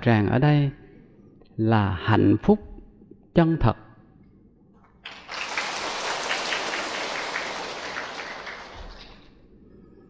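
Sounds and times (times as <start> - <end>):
large audience applauding: 5.0 - 9.3.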